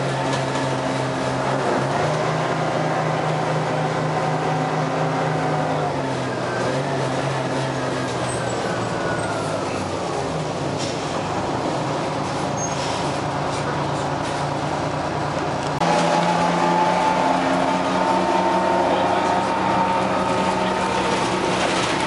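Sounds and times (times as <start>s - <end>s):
bus diesel engine droning: 0.0s - 22.0s.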